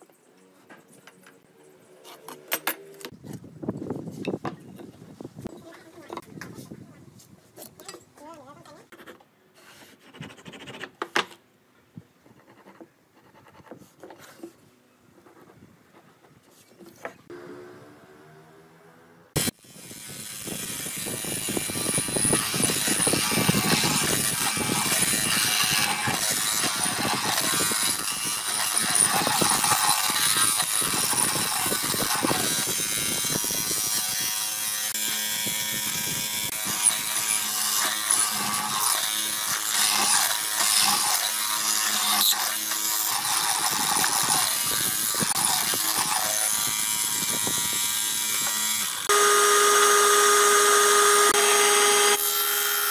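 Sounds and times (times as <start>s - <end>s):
mortiser chisel grinding into wood: 19.4s - 49.1s.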